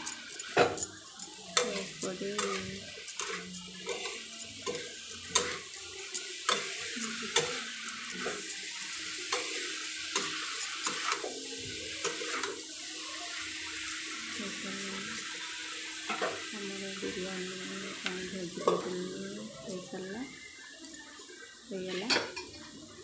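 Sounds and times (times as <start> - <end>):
utensil scraping against pan: 0.0 - 11.3
vegetables sizzling in a pan: 0.0 - 23.0.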